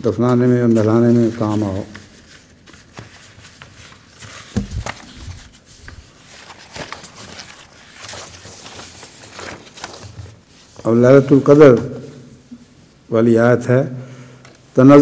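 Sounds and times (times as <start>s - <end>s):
paper rustling and crackling: 0.2s - 10.9s.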